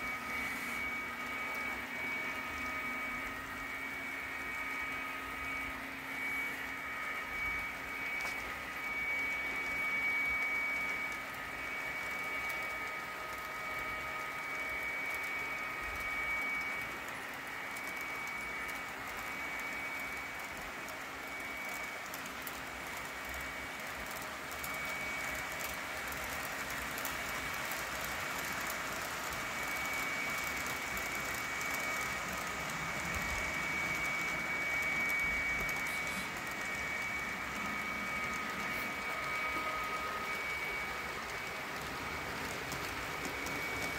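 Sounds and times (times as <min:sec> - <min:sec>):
high whine: 0:29.0 - 0:43.9
small wheels clattering on track: 0:41.2 - 0:43.9.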